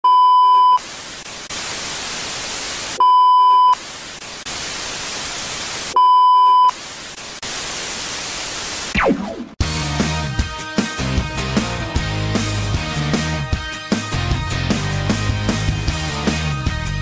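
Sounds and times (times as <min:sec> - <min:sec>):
tv static hiss: 0:00.6 - 0:09.6
test-tone beep: 0:03.0 - 0:03.8.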